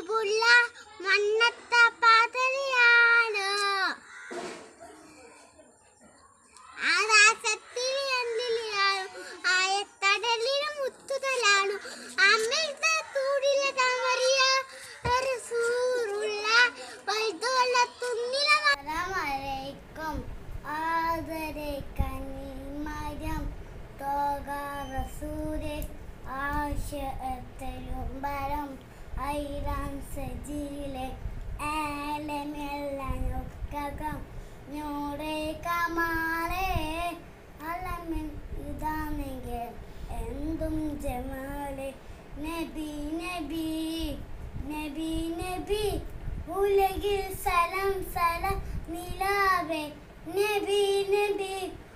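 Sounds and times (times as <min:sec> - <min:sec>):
young boy singing: 0:00.0 - 0:04.0, 0:06.7 - 0:51.9
boy breathing: 0:09.1 - 0:09.4, 0:11.8 - 0:12.2, 0:14.6 - 0:15.1, 0:16.7 - 0:17.1.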